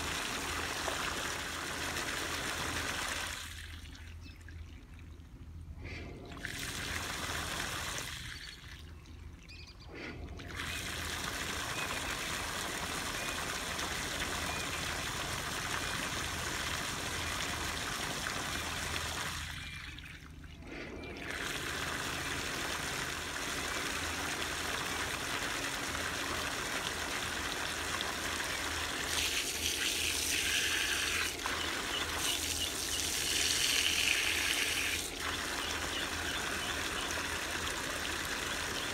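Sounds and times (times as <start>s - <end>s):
hose water jet splashing on metal: 20.6s - 38.9s.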